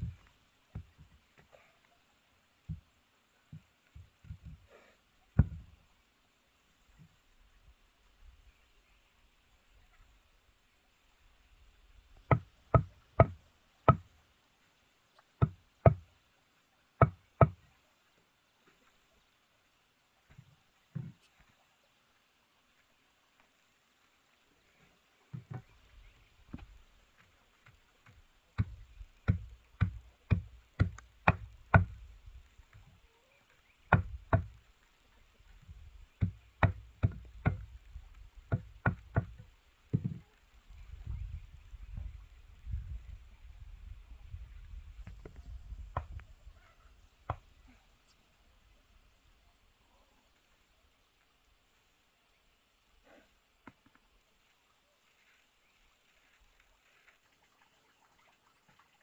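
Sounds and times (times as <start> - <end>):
hand tool striking wood: 5.4 - 5.6, 12.3 - 14.1, 15.4 - 16.1, 17.0 - 17.6, 28.0 - 32.0, 33.9 - 34.6, 36.2 - 37.7, 38.5 - 39.4.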